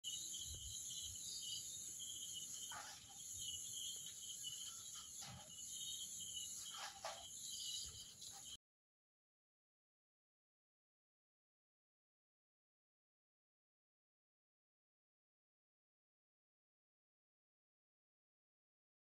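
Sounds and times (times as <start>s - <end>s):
crickets chirping: 0.0s - 8.6s.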